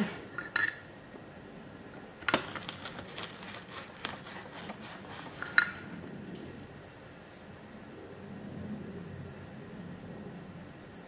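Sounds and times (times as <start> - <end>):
metal tools clinking: 0.4 - 0.9.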